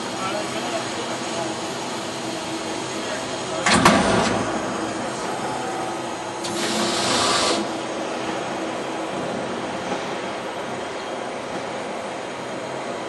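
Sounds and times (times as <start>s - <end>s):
machine hum: 0.0s - 10.5s
loud hiss: 6.4s - 7.8s.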